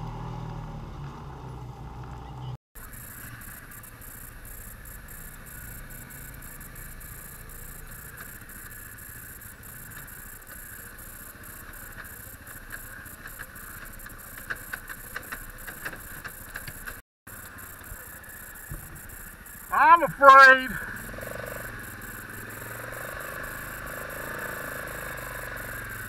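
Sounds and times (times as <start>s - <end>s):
atv engine running: 0.0s - 26.0s
sharp rattles and knocks: 9.8s - 17.6s.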